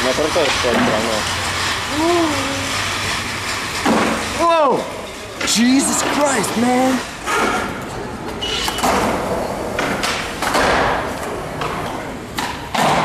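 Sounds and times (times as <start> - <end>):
skateboard wheels rolling on concrete: 0.0 - 13.0
skateboard knocks and landings: 8.8 - 13.0.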